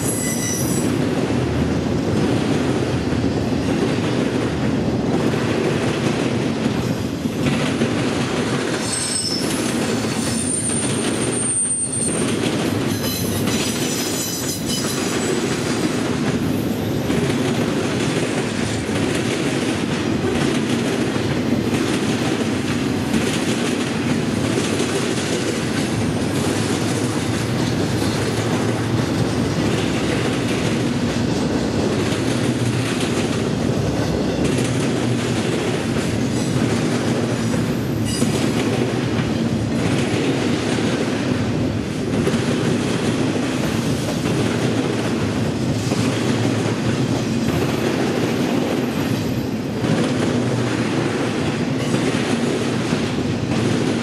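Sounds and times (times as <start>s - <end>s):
high-pitched wheel squeals: 0.0s - 0.9s, 8.8s - 9.6s, 10.2s - 12.2s
freight train rumbling past: 0.0s - 54.0s.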